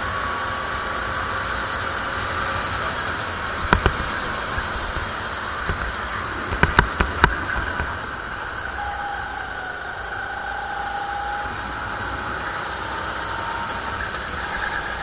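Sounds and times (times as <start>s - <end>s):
muffled kart engine: 0.0s - 15.0s
wind rushing hiss: 0.0s - 15.0s
sharp knocks: 3.6s - 8.0s.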